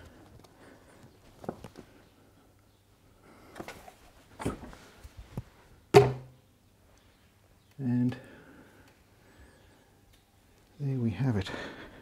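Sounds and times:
loud metal knock: 6.0 - 6.3.

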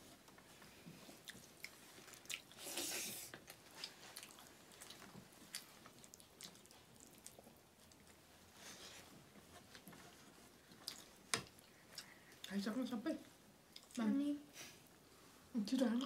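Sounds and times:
people chewing and biting: 0.9 - 8.2.

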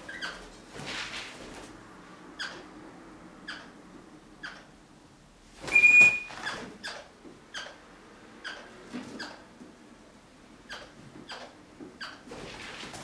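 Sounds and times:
parrot shrill screech: 5.7 - 6.6
parrot chirping: 5.7 - 7.8.

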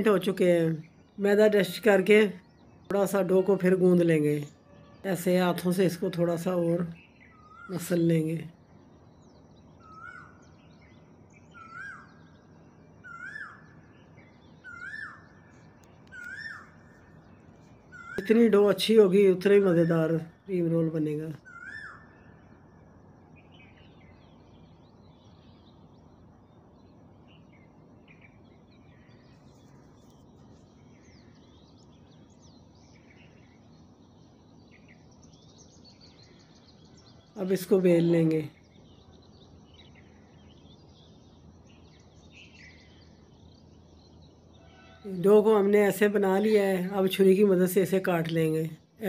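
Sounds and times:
small birds chirping: 0.0 - 49.0
faint bird calling: 6.0 - 8.3, 9.8 - 10.6, 11.4 - 18.9, 21.0 - 23.9, 44.4 - 45.2.

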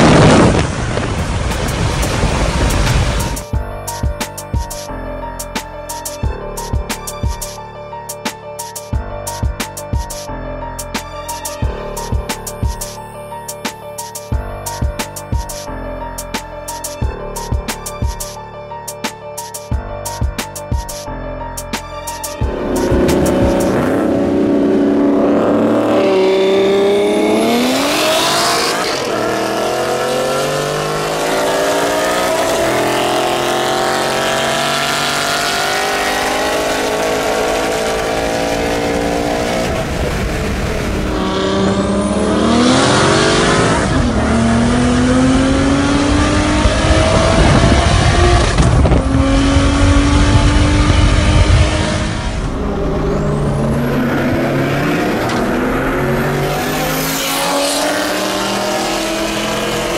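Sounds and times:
wind and road noise: 0.0 - 59.9
car engine accelerating: 22.4 - 59.9.

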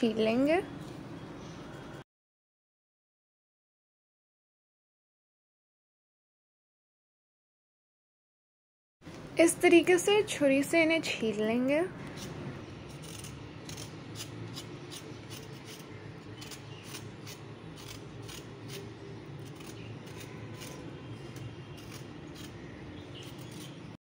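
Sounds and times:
knife scraping gourd skin: 12.0 - 24.0.

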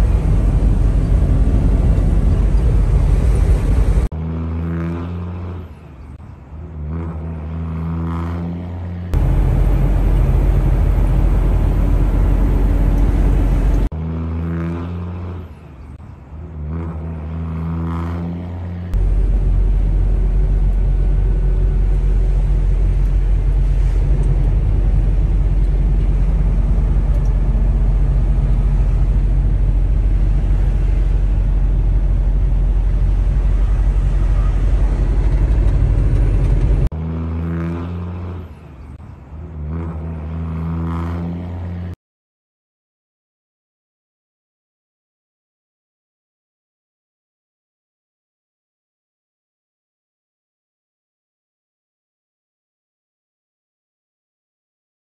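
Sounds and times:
truck engine and road rumble: 0.0 - 42.0
wavering low droning tones: 9.1 - 14.5, 18.9 - 36.9.

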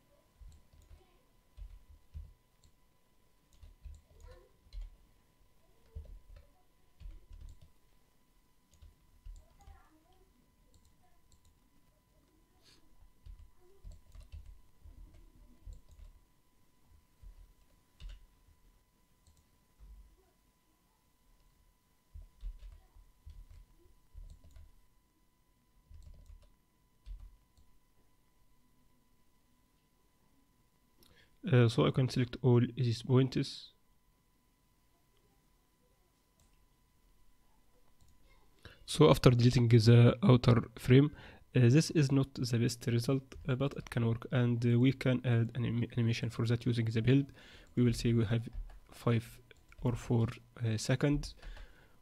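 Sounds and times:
computer mouse clicking: 24.2 - 24.7, 25.9 - 26.5.

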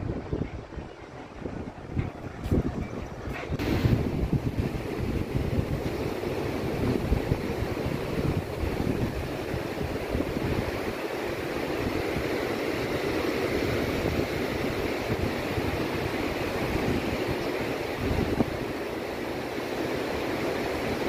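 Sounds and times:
wind buffeting microphone: 0.0 - 21.0
ocean surf breaking: 3.3 - 21.0.

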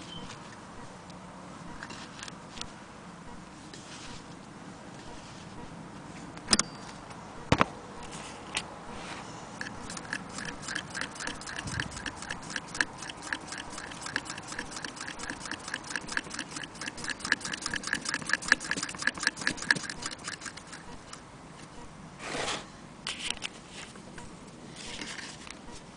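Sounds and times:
sewing machine clicking: 9.6 - 20.9
sharp clicks: 9.6 - 21.2.

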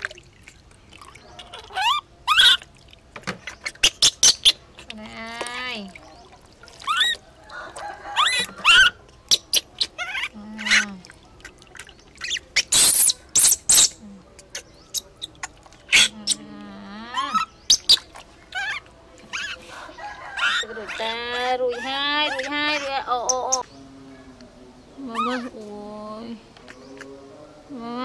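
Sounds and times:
water splashing in plastic tub: 0.0 - 10.0, 17.4 - 19.4
baby monkey squealing: 1.4 - 2.7, 3.4 - 4.9, 6.8 - 7.2, 8.2 - 10.9, 12.2 - 16.4, 17.1 - 19.7, 20.3 - 23.6, 25.1 - 25.6.

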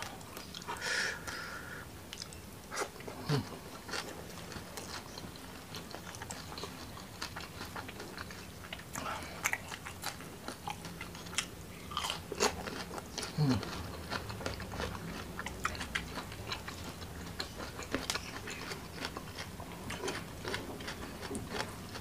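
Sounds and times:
person chewing food: 0.0 - 22.0.

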